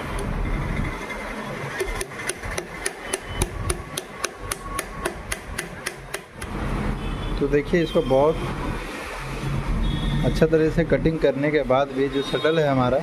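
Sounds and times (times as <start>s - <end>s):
small hammer tapping metal: 1.8s - 6.4s.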